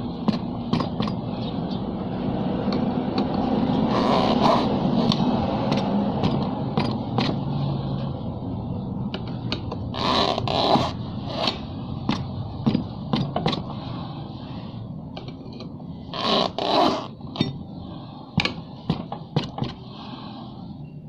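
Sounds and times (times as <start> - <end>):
steady low hum: 0.0 - 21.0
tyre lever scraping rim: 2.7 - 7.4, 9.2 - 13.7, 15.2 - 17.6.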